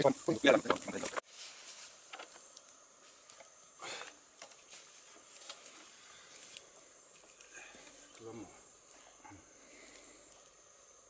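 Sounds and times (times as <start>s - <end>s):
steady high hiss: 0.0s - 11.0s
wood fire crackling: 0.0s - 11.0s
bamboo ticks and pops: 0.6s - 1.2s, 4.4s - 4.6s.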